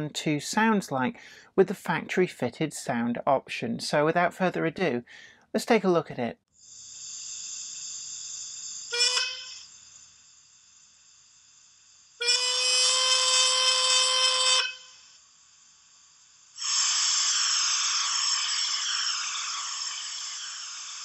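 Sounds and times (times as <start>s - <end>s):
steam hiss: 6.6s - 21.0s
model locomotive whistle: 8.8s - 9.8s, 12.2s - 15.2s, 16.6s - 21.0s.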